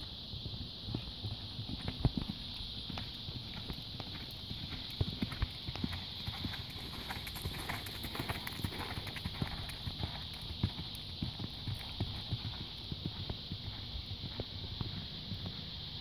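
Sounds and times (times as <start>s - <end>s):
horse hooves cantering on gravel: 0.0s - 16.0s.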